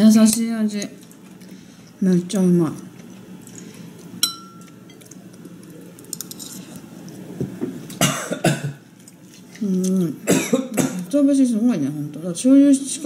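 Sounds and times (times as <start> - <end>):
spoon clinking ceramic bowl: 4.2 - 5.0.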